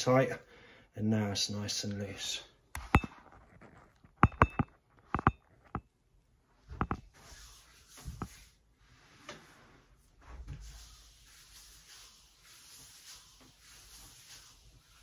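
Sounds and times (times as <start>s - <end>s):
sharp clicks and light knocks: 2.8s - 5.9s, 6.8s - 7.0s
gloved hands rubbing on leg: 10.6s - 15.0s.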